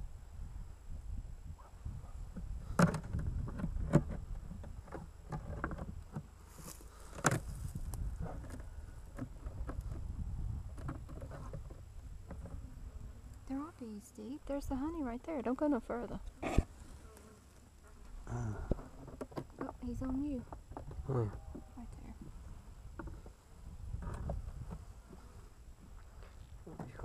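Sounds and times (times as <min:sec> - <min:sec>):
wind rumble on microphone: 0:00.0 - 0:06.3, 0:07.2 - 0:13.6, 0:19.6 - 0:27.0.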